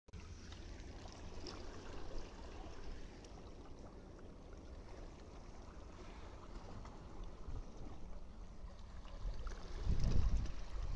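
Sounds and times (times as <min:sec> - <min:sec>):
small splashes: 0:00.2 - 0:08.0
low steady rumble: 0:00.2 - 0:10.9
water lapping over rocks: 0:00.2 - 0:10.9.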